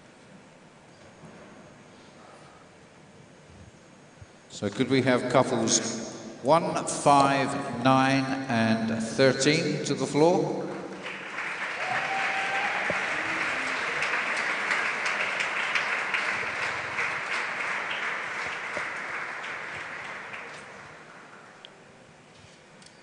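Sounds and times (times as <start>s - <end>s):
audience applauding: 10.6s - 21.5s.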